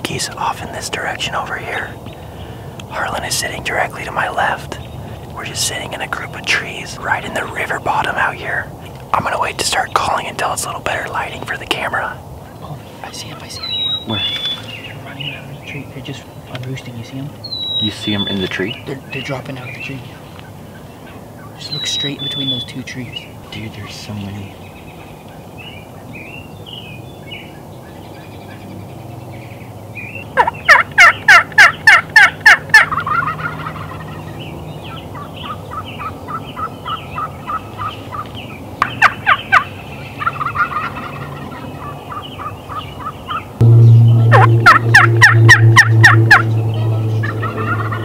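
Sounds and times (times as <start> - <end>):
turkey calls: 0.0 - 16.6, 17.3 - 28.7, 29.4 - 48.0
turkeys gobbling: 17.3 - 24.2, 30.0 - 43.6, 44.2 - 48.0
steady low hum: 43.5 - 48.0.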